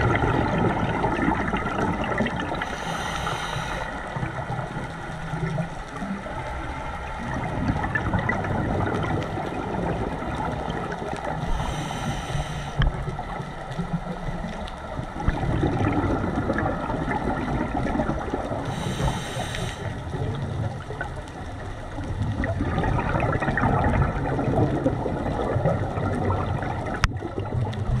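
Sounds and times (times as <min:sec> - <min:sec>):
gurgling exhaled bubbles: 0:00.0 - 0:28.0
regulator hissing inhales: 0:02.6 - 0:04.2, 0:11.4 - 0:12.9, 0:18.7 - 0:20.0.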